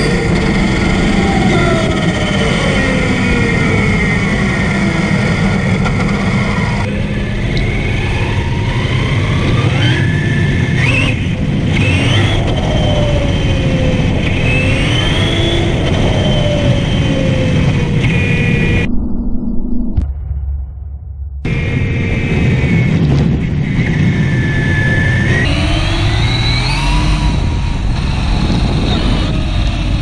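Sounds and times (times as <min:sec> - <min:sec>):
electric motor whining: 0:00.0 - 0:18.9
tyres rumbling on asphalt: 0:00.0 - 0:18.9, 0:21.5 - 0:30.0.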